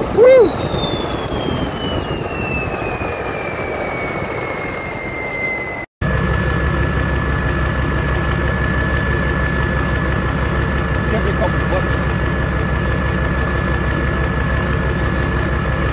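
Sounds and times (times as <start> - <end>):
turbo whistle: 0.0 - 6.4
diesel engine running: 0.0 - 15.9.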